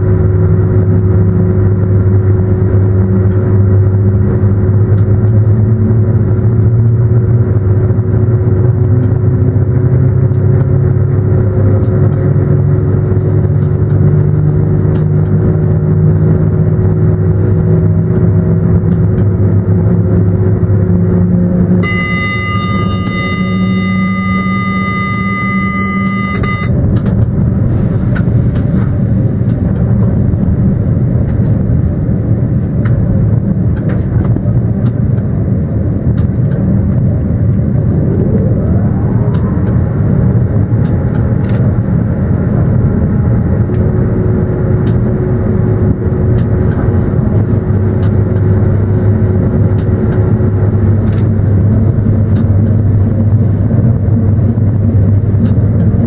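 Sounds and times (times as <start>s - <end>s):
rising whine: 0.0s - 56.0s
train rumble inside cab: 0.0s - 56.0s
steady high tone: 21.8s - 26.8s, 37.2s - 41.5s.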